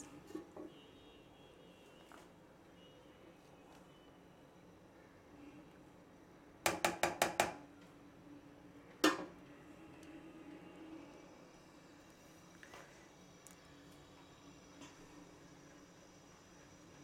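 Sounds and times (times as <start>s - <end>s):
spatula tapping metal saucepan: 6.7s - 7.6s.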